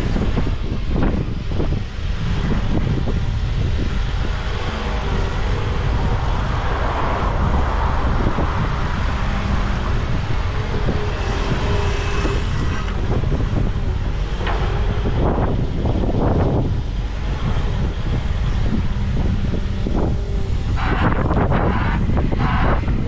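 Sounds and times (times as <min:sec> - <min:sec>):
diesel engine rumbling: 0:00.0 - 0:23.0.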